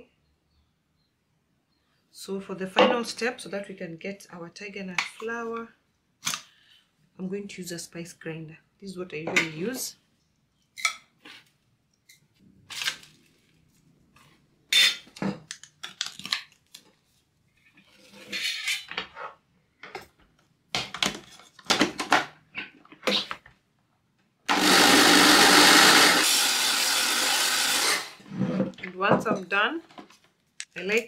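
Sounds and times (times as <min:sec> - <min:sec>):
electric spice grinder running: 0:24.5 - 0:28.2.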